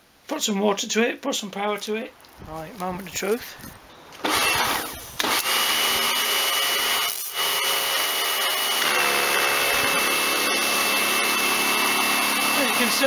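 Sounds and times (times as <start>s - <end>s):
pressure washer motor and pump: 4.2s - 13.0s.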